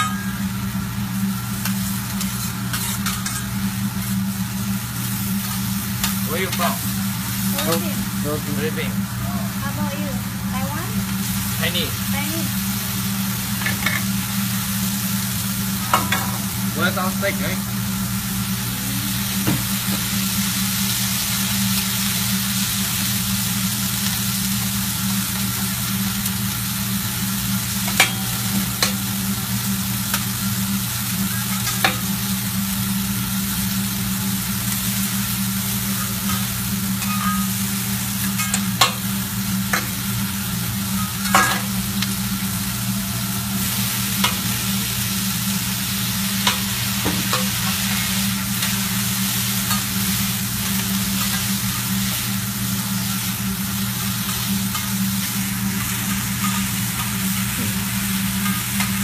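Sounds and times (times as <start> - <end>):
food sizzling on griddle: 0.0 - 59.0
low steady hum: 0.0 - 59.0
spatulas clinking on griddle: 1.6 - 3.6, 27.8 - 29.0, 35.9 - 37.6, 38.2 - 39.1, 40.9 - 41.8.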